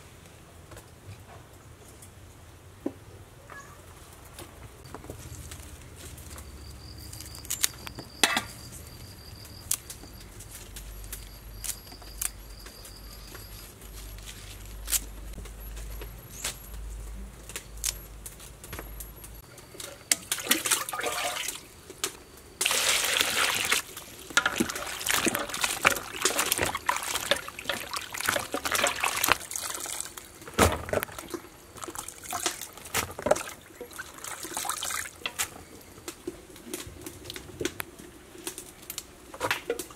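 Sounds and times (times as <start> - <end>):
water splashing in basin: 20.1 - 21.7, 22.6 - 30.3, 30.9 - 35.2
rushing water: 20.4 - 21.6, 22.6 - 30.1.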